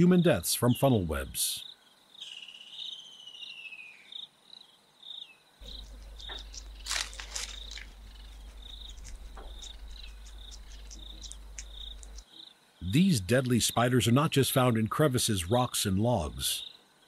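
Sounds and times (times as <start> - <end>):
crickets chirping: 0.0 - 17.0
steady low hum: 5.6 - 12.2
sharp crackles: 5.6 - 12.3.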